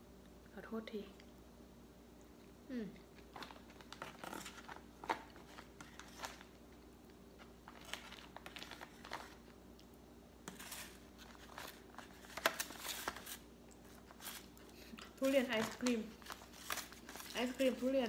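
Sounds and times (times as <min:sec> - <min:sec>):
faint steady hum: 0:00.0 - 0:18.0
plastic wrap crinkling: 0:03.1 - 0:06.8, 0:07.4 - 0:09.6, 0:10.5 - 0:18.0.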